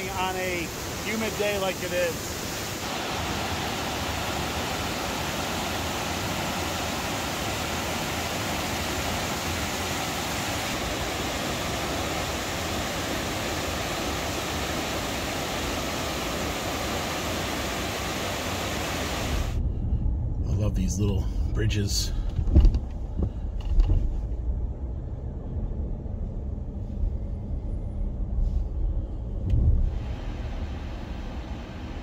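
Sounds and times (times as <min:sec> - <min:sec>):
waterfall rushing: 0:00.0 - 0:19.6.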